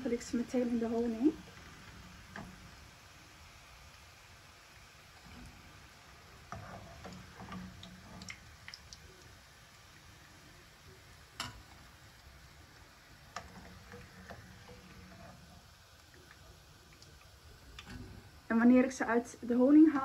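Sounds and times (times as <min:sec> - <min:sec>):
metal utensils clicking on pan: 0:11.4 - 0:11.9, 0:13.3 - 0:15.5.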